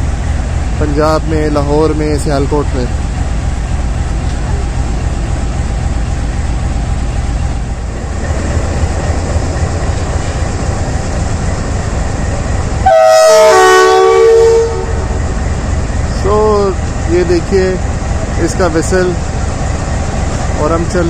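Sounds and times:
diesel locomotive idling: 0:00.0 - 0:21.0
locomotive horn blowing: 0:12.8 - 0:15.4.

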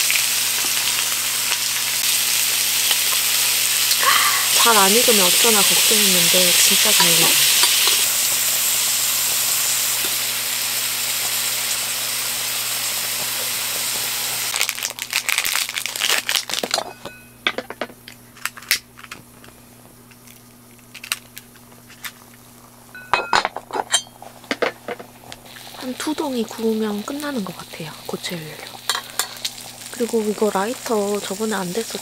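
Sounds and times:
beef sizzling in grill pan: 0:00.0 - 0:16.8, 0:24.0 - 0:32.0
pan and tongs clicking: 0:04.6 - 0:08.1, 0:28.2 - 0:29.8.

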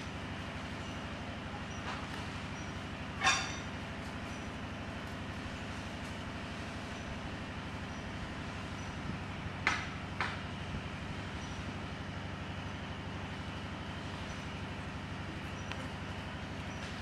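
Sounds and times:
low mechanical drone: 0:00.0 - 0:17.0
short high-pitched squeak: 0:03.2 - 0:03.6.

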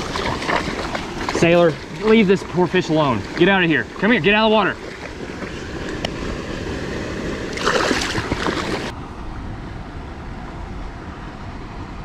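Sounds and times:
water rushing through spillway: 0:00.0 - 0:06.4, 0:07.2 - 0:08.9.

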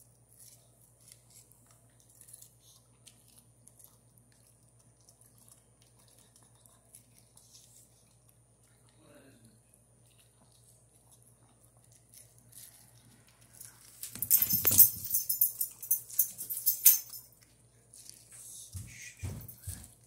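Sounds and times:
dog crunching corn: 0:00.0 - 0:09.0, 0:09.7 - 0:14.2, 0:17.4 - 0:18.6.

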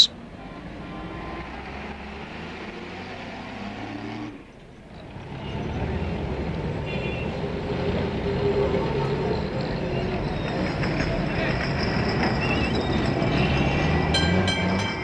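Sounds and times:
tram rumbling along tracks: 0:04.5 - 0:15.0.

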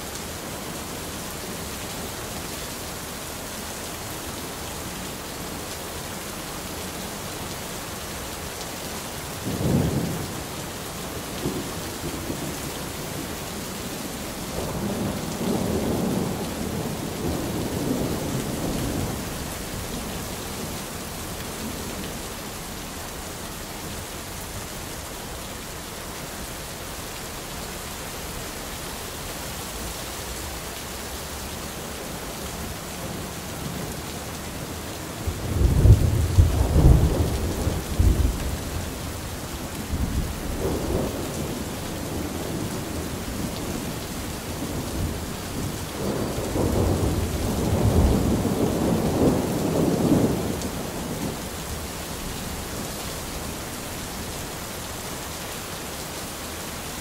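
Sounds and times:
steady rain: 0:00.0 - 0:57.0
rolling thunder: 0:35.2 - 0:38.8, 0:44.6 - 0:51.4.

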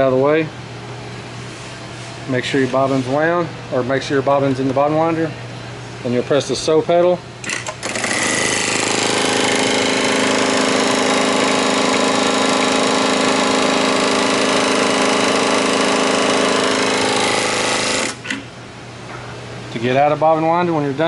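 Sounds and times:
sewing machine running: 0:07.4 - 0:18.3.

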